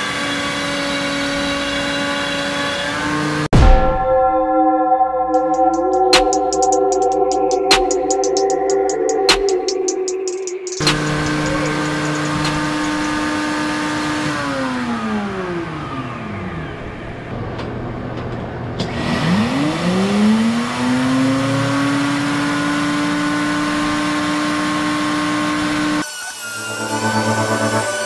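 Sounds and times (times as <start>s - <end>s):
router motor running: 10.8s - 17.0s.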